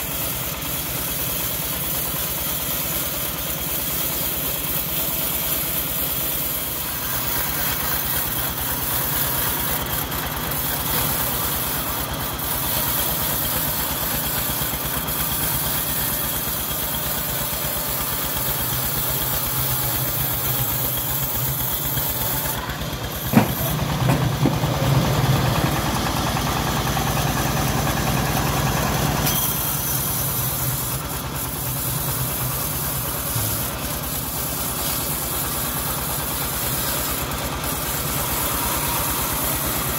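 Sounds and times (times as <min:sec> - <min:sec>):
bandsaw mill cutting log: 0:00.0 - 0:39.9
stationary engine running: 0:00.0 - 0:39.9
sharp knock: 0:23.3 - 0:24.8.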